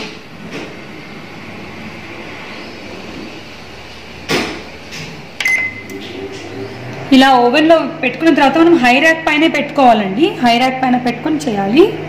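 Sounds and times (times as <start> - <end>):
steady hum: 0.0 - 12.0
short high beep: 5.4 - 5.9.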